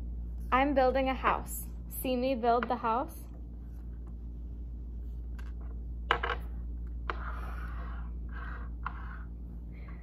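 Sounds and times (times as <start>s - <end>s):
blocks scraping on tabletop: 7.0s - 9.3s.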